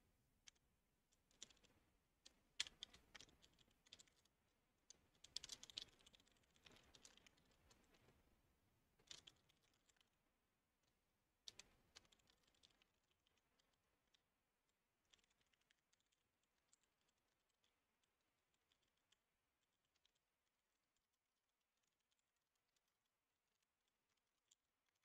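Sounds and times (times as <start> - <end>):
faint keyboard typing: 0.4 - 8.3, 9.0 - 10.2, 11.4 - 21.1.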